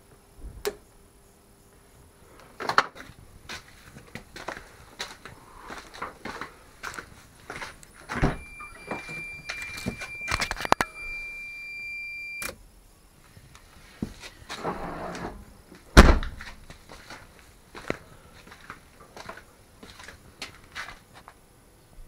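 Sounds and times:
high warning buzzer tone: 8.3s - 12.5s
car door shutting thump: 16.0s - 16.4s.

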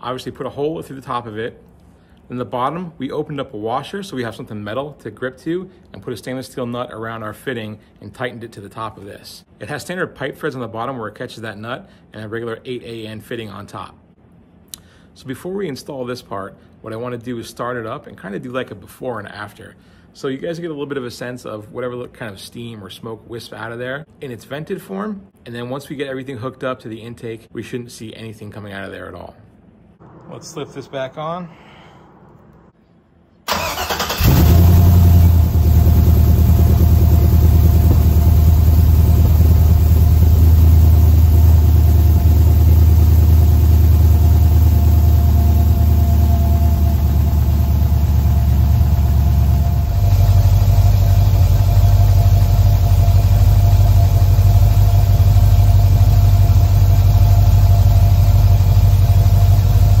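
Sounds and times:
car engine cranking and starting: 33.5s - 60.0s
car engine idling: 33.5s - 60.0s.

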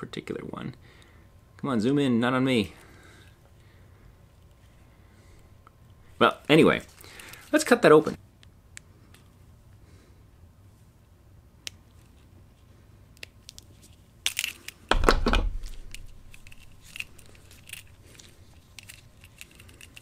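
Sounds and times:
plastic sleeve crinkling: 15.5s - 20.0s.

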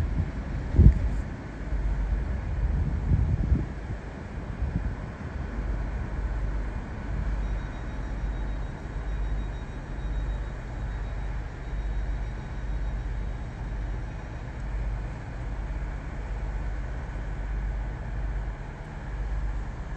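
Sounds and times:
diesel train engine rumble: 0.0s - 19.9s
faint high whine: 4.6s - 19.8s.

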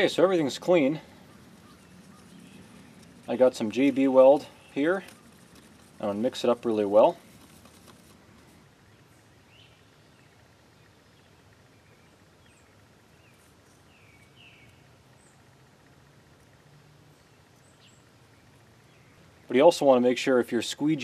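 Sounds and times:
faint bird chirps: 0.8s - 6.2s, 8.7s - 15.6s.

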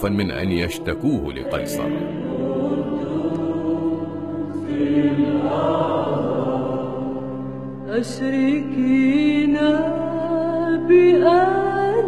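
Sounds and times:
group singing a hymn in unison: 1.9s - 11.5s.

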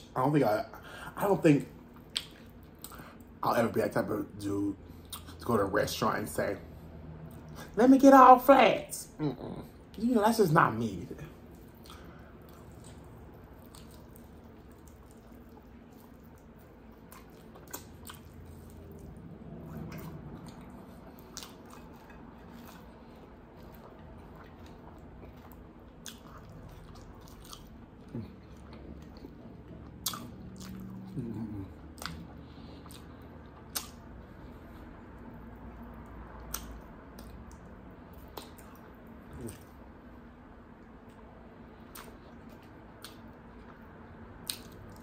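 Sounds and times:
chewing and biting: 1.9s - 3.4s, 11.3s - 39.8s, 41.0s - 45.0s
wet mouth clicks and smacks: 2.1s - 3.3s, 11.8s - 18.8s, 32.0s - 34.1s, 36.4s - 39.6s, 44.4s - 45.0s.

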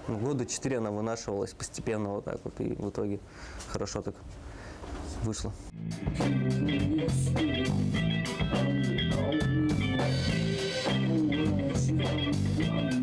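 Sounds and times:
bass guitar notes: 5.7s - 13.0s
electric guitars: 5.7s - 13.0s
drum kit beat with cymbals: 5.8s - 13.0s.

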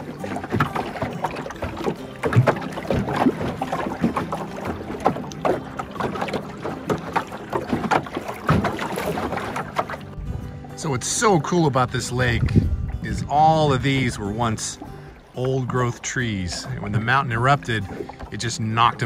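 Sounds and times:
water slapping boat hull: 0.0s - 19.0s
wind noise: 12.0s - 14.4s.

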